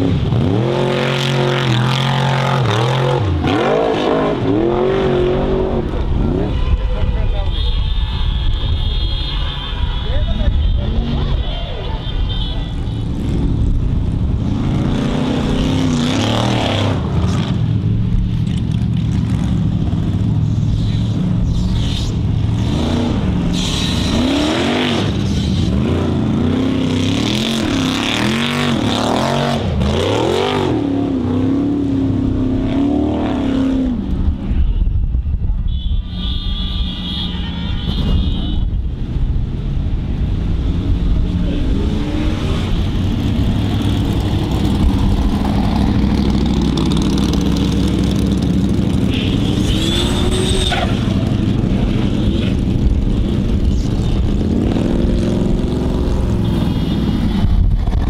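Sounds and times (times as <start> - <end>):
engine revving at high revs: 0.0 - 5.8, 14.5 - 17.5, 22.6 - 33.9, 41.8 - 56.4.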